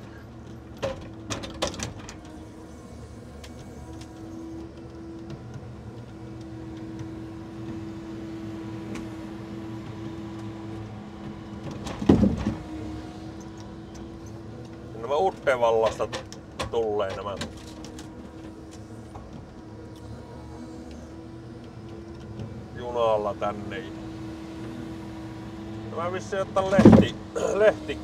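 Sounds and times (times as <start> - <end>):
hydraulics humming: 0.0 - 28.0
timber knocking as set down: 26.7 - 27.2.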